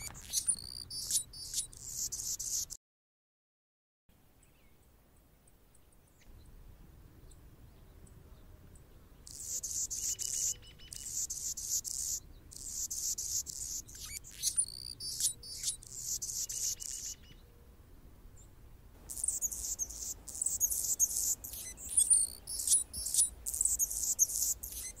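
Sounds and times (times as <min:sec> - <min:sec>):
hummingbird singing: 0:00.0 - 0:02.8, 0:09.3 - 0:17.4, 0:19.0 - 0:25.0.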